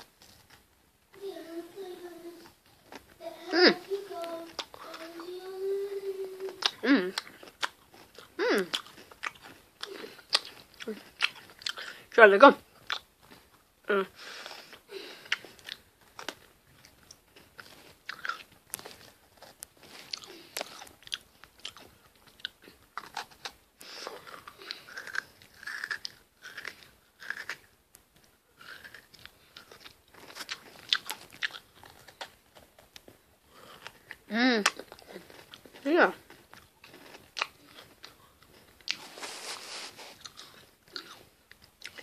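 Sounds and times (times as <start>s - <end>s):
cookies crunching: 0.0s - 42.0s
wet mouth noises: 6.4s - 12.0s.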